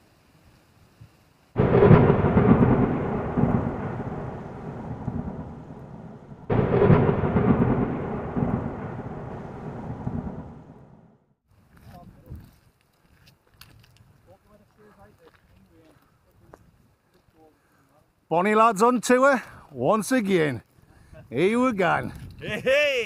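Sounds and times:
thunderclaps rumbling: 1.6 - 11.3.

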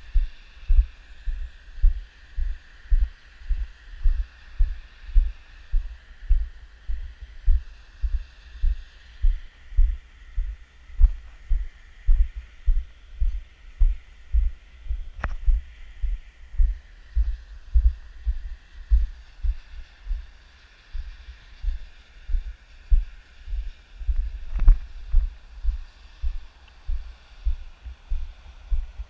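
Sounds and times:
faint steady hiss: 0.0 - 29.0
footsteps on dry clay: 21.0 - 29.0.

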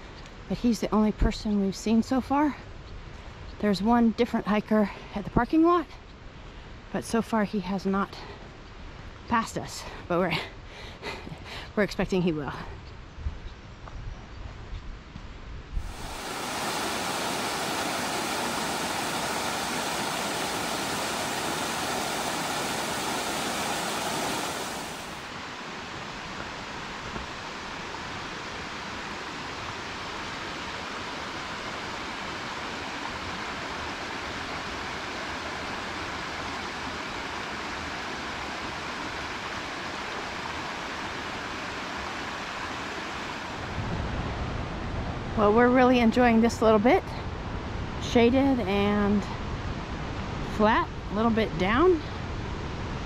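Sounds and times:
stream rushing over rocks: 15.8 - 43.8.

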